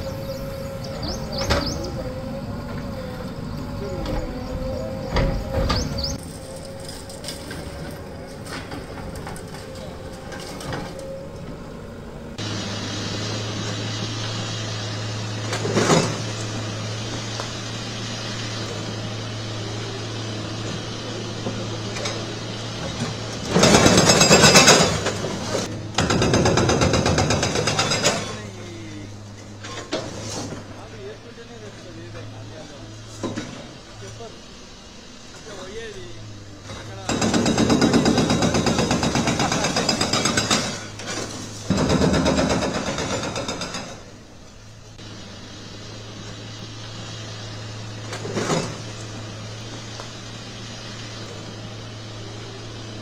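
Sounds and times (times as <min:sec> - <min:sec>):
excavator diesel engine humming: 0:00.0 - 0:53.0
concrete building collapsing: 0:36.7 - 0:44.1.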